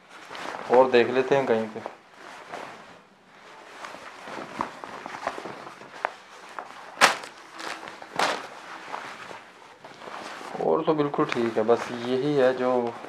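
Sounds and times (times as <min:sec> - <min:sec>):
fabric rustling: 0:00.0 - 0:13.0
sharp crack of fabric: 0:03.9 - 0:10.5.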